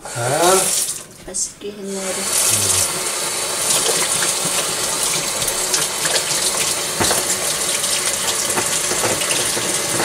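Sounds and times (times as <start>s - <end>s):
tap running into sink: 3.6s - 10.0s.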